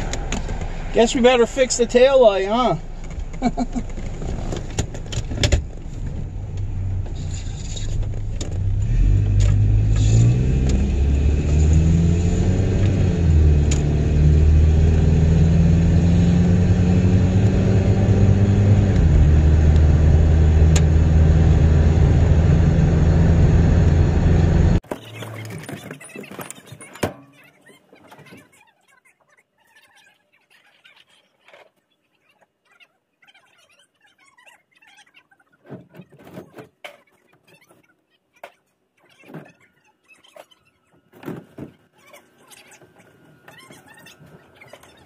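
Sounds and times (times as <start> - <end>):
pickup truck engine accelerating: 5.6 - 24.8.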